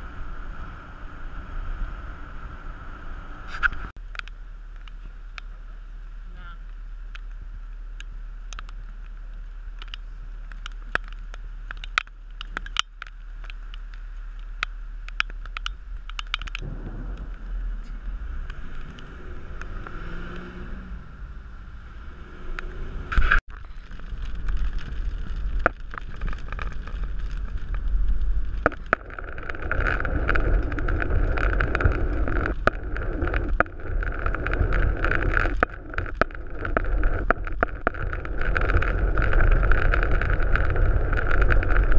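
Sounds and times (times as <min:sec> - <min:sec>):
tyres on wet road: 0:00.0 - 0:41.9
raindrops ticking on camera: 0:03.9 - 0:20.5, 0:23.4 - 0:41.9
car pulling away: 0:15.8 - 0:23.4.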